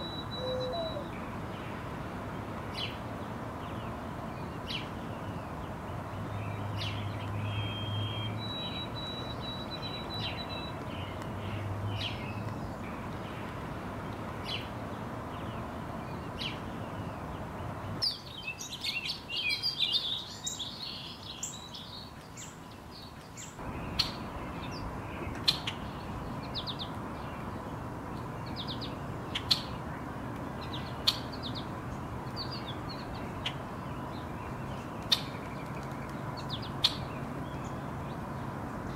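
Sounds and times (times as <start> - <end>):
rapid bird twittering: 0.0 - 1.1, 6.8 - 11.1
thin whistled bird notes: 0.0 - 1.1, 6.8 - 11.2
songbird chip notes: 0.0 - 1.2, 6.8 - 13.3.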